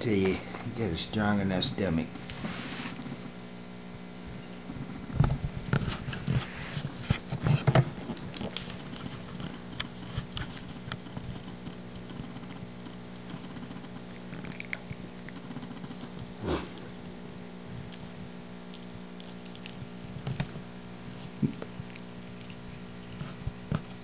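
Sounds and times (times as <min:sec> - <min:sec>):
steady low hum: 0:00.0 - 0:24.0
puppy crunching popcorn: 0:07.5 - 0:24.0.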